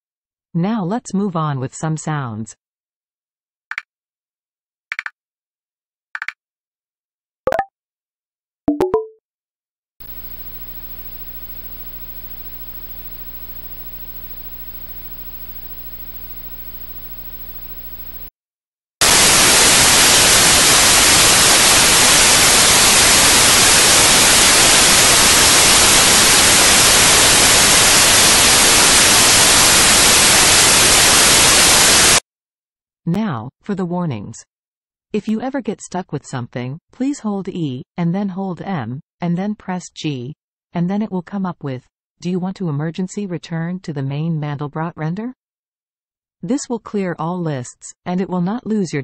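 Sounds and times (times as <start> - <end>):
low buzzing hum: 10.0 - 18.3
white noise static hiss: 10.0 - 18.3, 19.0 - 32.2.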